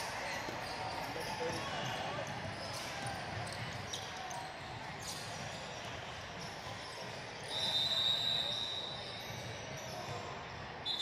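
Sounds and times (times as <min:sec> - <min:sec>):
referee whistle blast: 0:07.5 - 0:08.9.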